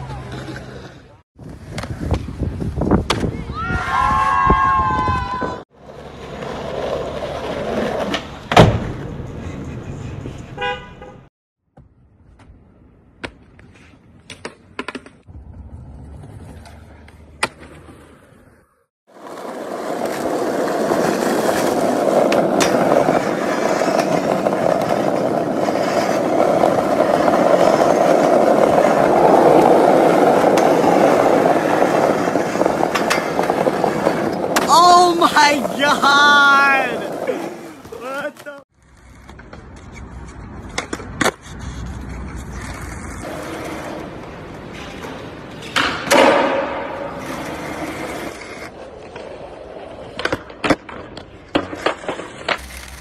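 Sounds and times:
skateboard wheels rolling on asphalt: 0:00.0 - 0:53.0
skateboard clack: 0:19.2 - 0:53.0.

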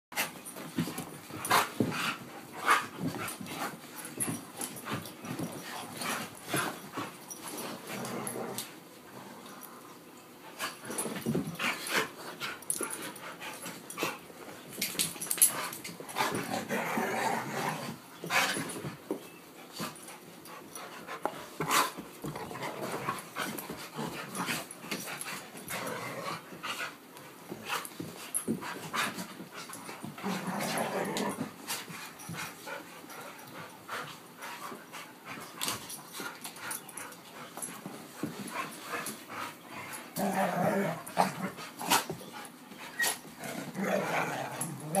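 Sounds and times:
dogs growling: 0:07.8 - 0:09.4, 0:16.1 - 0:18.0, 0:25.6 - 0:26.5, 0:30.0 - 0:31.6, 0:39.8 - 0:42.1, 0:43.4 - 0:45.0
dogs panting: 0:31.4 - 0:43.8.

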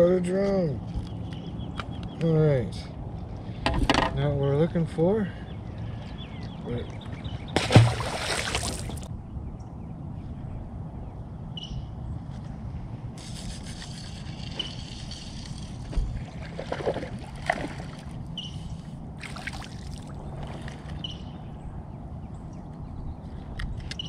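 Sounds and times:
water lapping against boat hull: 0:07.0 - 0:09.1, 0:15.8 - 0:18.3
fish thrashing and splashing: 0:07.6 - 0:09.1.

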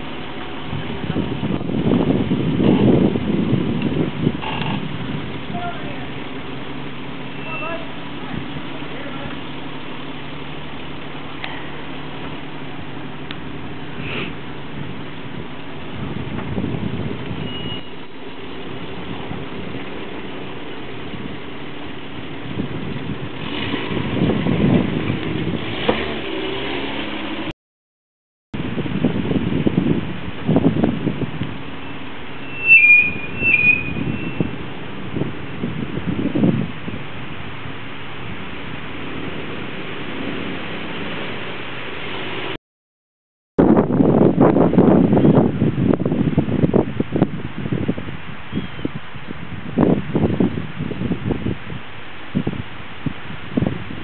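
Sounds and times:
wind buffeting microphone: 0:00.0 - 0:26.1, 0:28.6 - 0:42.6, 0:43.6 - 0:54.0
engine running at low speed: 0:00.0 - 0:27.5, 0:28.6 - 0:42.6.

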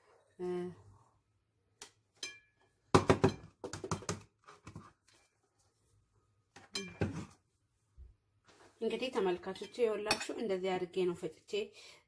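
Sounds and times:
grinder cup tapping and knocking: 0:02.9 - 0:04.8.

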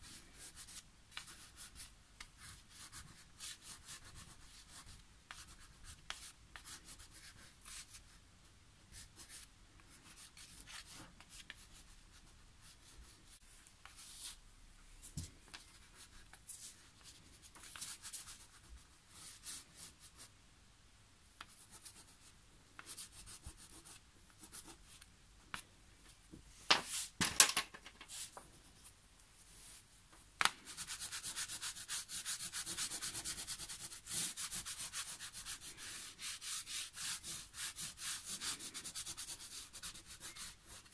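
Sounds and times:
crayon scratching on paper: 0:30.7 - 0:40.9.

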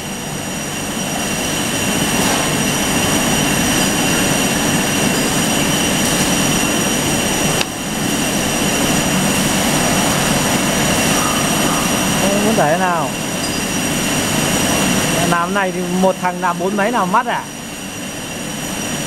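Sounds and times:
grinding machine running: 0:00.0 - 0:19.0
thin high whine: 0:00.0 - 0:19.0.

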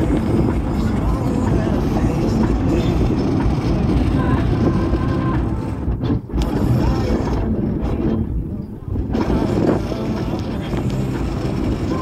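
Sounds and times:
car road and wind noise: 0:00.0 - 0:12.0.

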